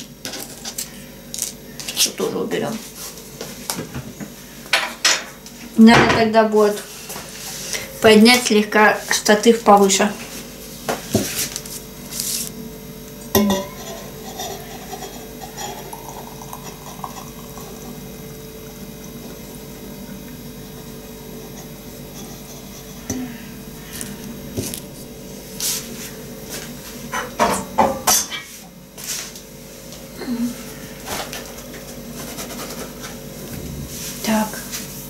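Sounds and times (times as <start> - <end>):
kettle and pottery clinks: 13.4 - 17.9
hot water pouring into teapot: 15.5 - 18.1.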